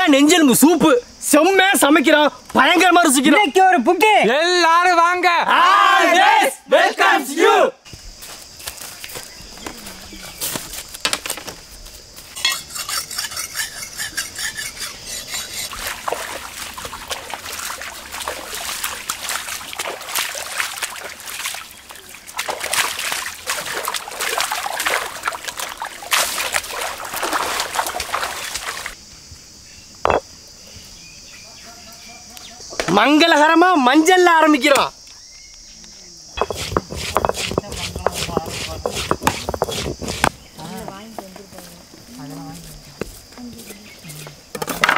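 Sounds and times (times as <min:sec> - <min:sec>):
bones rubbed on stone: 0:12.4 - 0:15.8, 0:36.4 - 0:40.4
water pouring and splashing: 0:15.6 - 0:29.0.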